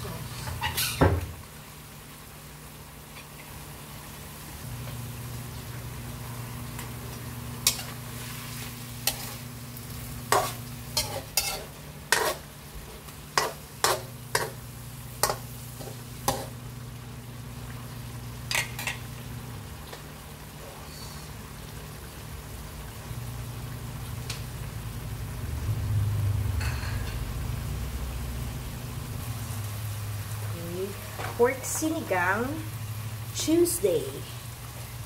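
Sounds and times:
faint frying hiss: 0.0s - 35.0s
metal spatula scraping a wok: 7.6s - 9.6s, 10.2s - 12.5s, 13.4s - 14.6s, 15.2s - 16.6s.

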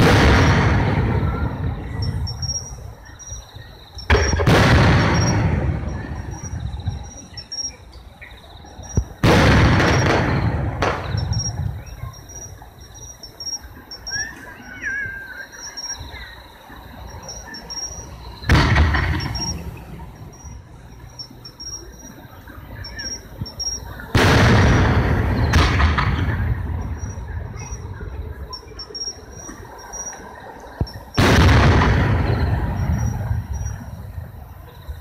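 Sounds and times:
firework shells bursting: 4.1s - 6.5s, 8.9s - 11.8s, 18.4s - 20.1s, 24.2s - 27.3s, 30.8s - 34.1s.

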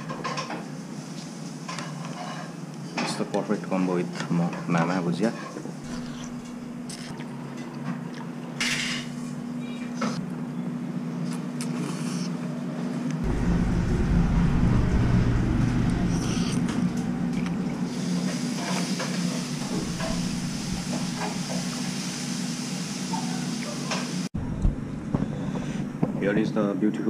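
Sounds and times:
low hum of eatery: 0.0s - 27.0s
deep rumble: 13.2s - 18.6s, 19.2s - 21.8s.

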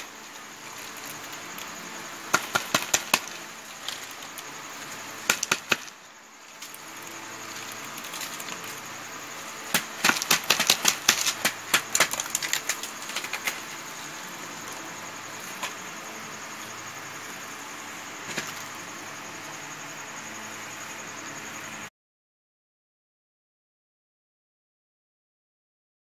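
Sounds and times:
seeds rattling onto plastic sack: 0.0s - 13.8s
steady low hiss: 0.0s - 21.9s.

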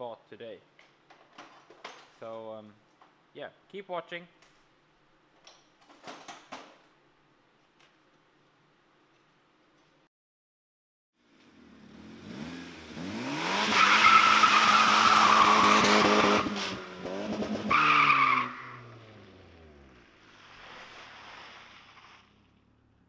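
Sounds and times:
car engine revving: 11.5s - 20.8s.

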